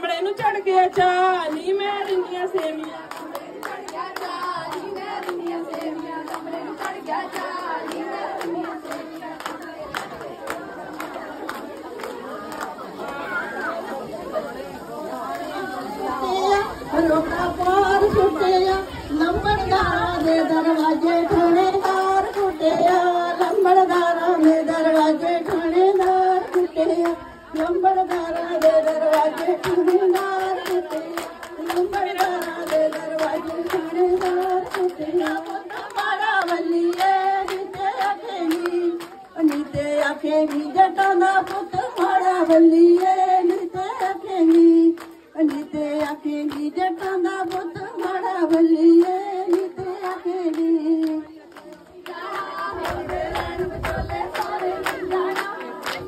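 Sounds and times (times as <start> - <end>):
women singing folk song: 0.0 - 56.0
hand clapping in time: 0.9 - 13.2, 21.3 - 56.0.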